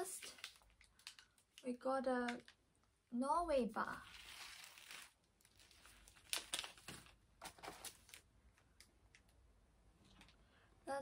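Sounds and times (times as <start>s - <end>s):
plastic wrappers crinkling: 0.0s - 2.6s, 4.1s - 9.3s.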